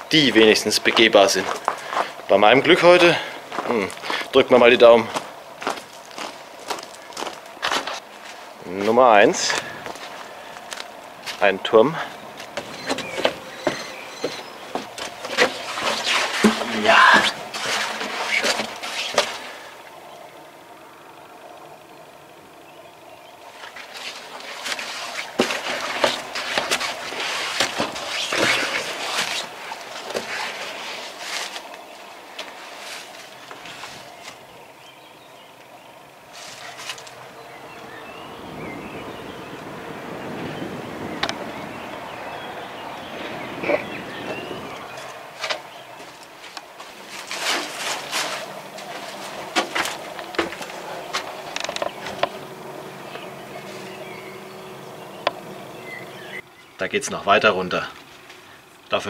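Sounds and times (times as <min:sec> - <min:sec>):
footsteps crunching on stone and leaves: 0:00.8 - 0:02.2, 0:02.8 - 0:19.6, 0:23.6 - 0:34.4, 0:44.3 - 0:54.8
clothing and camera rustle: 0:05.1 - 0:11.5, 0:12.1 - 0:19.9, 0:23.5 - 0:34.5, 0:36.3 - 0:37.3, 0:43.2 - 0:54.8
faint bird chirps: 0:12.1 - 0:15.0
sharp knocks and scrapes: 0:12.5 - 0:19.6, 0:23.6 - 0:31.7, 0:46.4 - 0:52.4.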